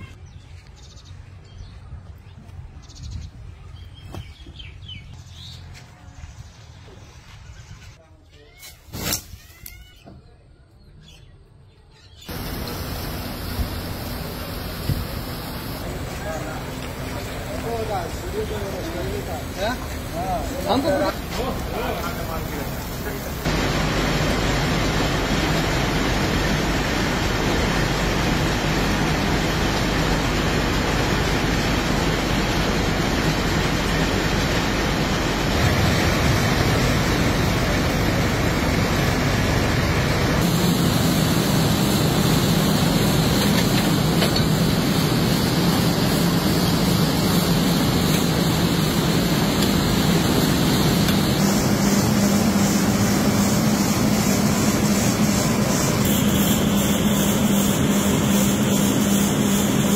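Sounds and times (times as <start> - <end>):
mill machinery running: 12.3 - 59.9.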